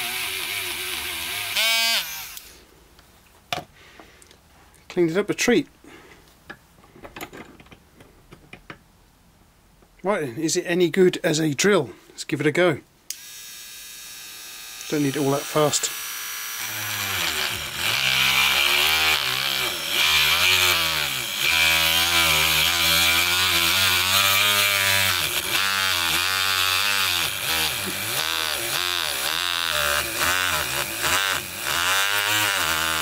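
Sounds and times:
rotary tool drilling into wood: 0:00.0 - 0:02.6, 0:13.1 - 0:33.0.

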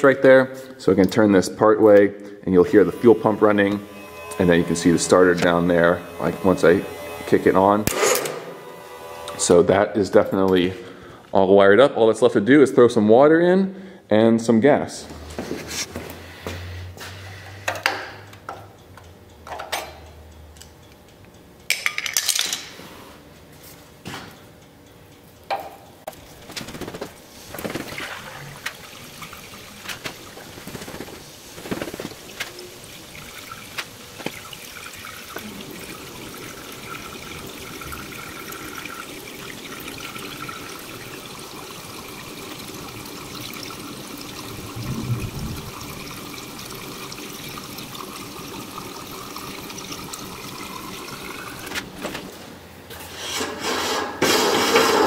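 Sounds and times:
liquid pouring into a tank: 0:27.4 - 0:52.0.

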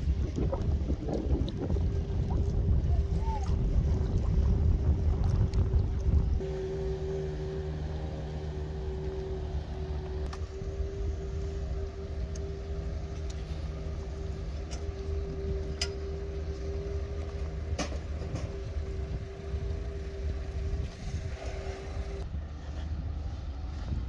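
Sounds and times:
low rumble: 0:00.0 - 0:24.0
mechanical hum: 0:04.8 - 0:24.0.

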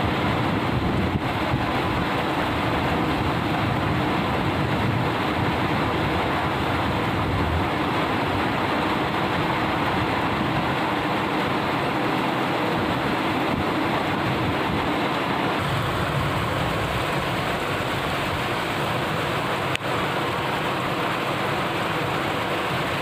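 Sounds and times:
steady rain falling: 0:00.0 - 0:23.0.

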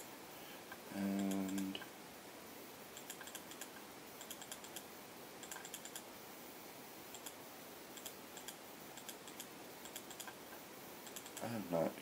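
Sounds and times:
steady hiss: 0:00.0 - 0:12.0
computer keyboard keystrokes: 0:03.0 - 0:04.8, 0:05.4 - 0:06.0, 0:08.0 - 0:10.4, 0:11.1 - 0:11.5.

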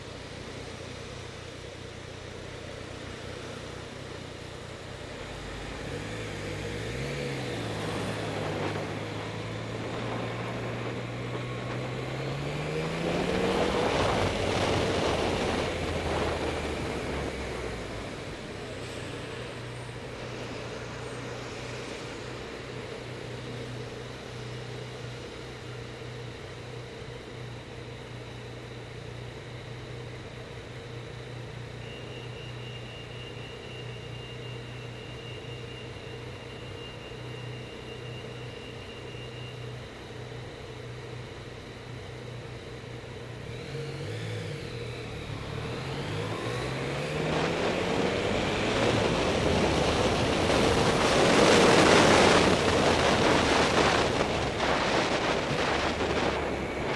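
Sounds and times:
motorcycle engine idling and revving: 0:00.0 - 0:56.9
wind noise on microphone: 0:13.3 - 0:17.5, 0:47.2 - 0:56.9.

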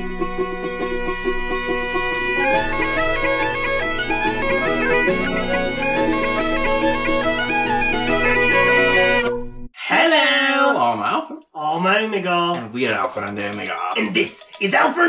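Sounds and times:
bagpipe music: 0:00.0 - 0:09.6.

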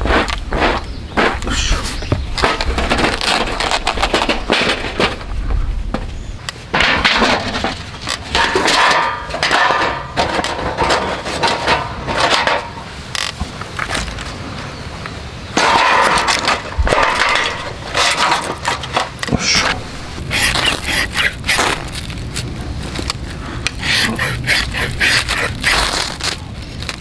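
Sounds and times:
metal knocks and scrapes: 0:00.0 - 0:13.6, 0:15.6 - 0:22.2
metal sheet flexing and clattering: 0:02.4 - 0:05.4, 0:06.6 - 0:13.3, 0:15.6 - 0:27.0.

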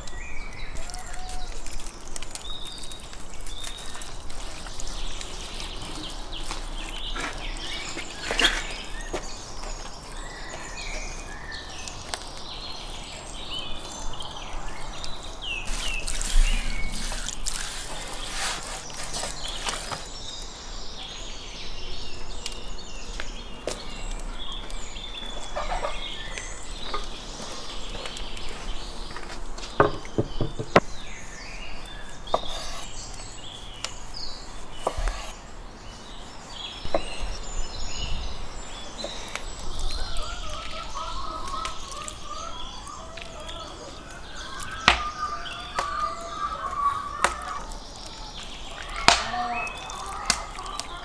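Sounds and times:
birds chirping: 0:00.0 - 0:51.0.

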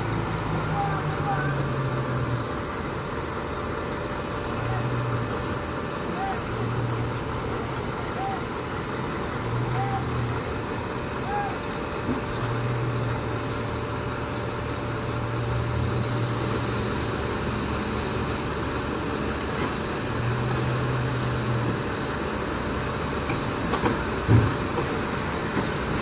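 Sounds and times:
diesel engine running: 0:00.0 - 0:26.0.

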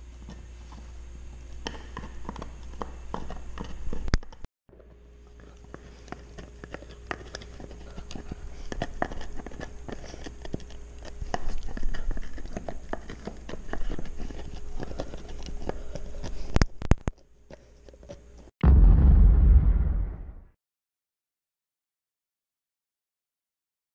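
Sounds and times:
dog gnawing a bone: 0:00.2 - 0:18.5.

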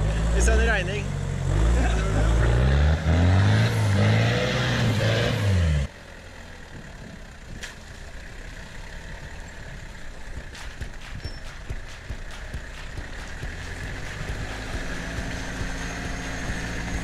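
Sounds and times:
engine revving: 0:00.0 - 0:05.9, 0:08.7 - 0:17.0
quiet engine rumble: 0:05.9 - 0:17.0.

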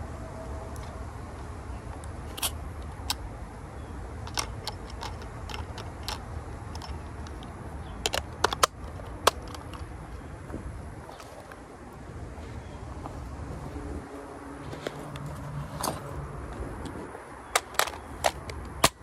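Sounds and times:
plastic and metal clicks: 0:04.2 - 0:09.9, 0:16.8 - 0:19.0.

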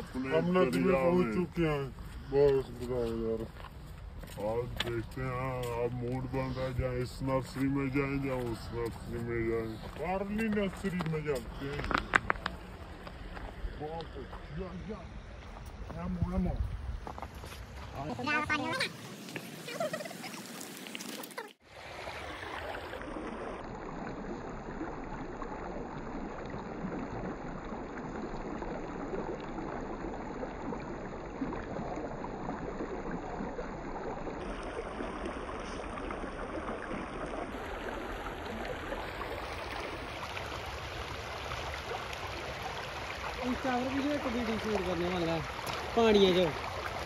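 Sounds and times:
river water rushing over stones: 0:17.8 - 0:25.1, 0:32.2 - 0:47.0.

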